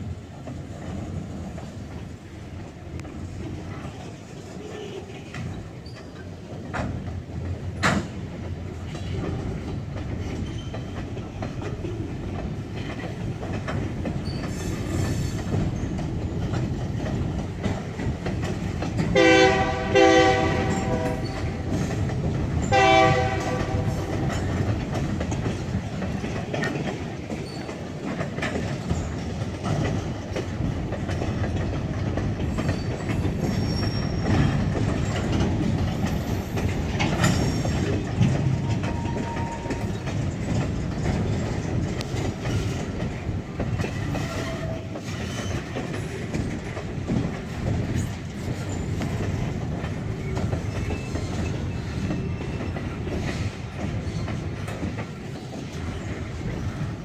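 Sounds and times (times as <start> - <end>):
train wheels rumbling and clacking: 0.0 - 57.0
locomotive air horn blasts: 19.2 - 21.5, 22.7 - 24.3.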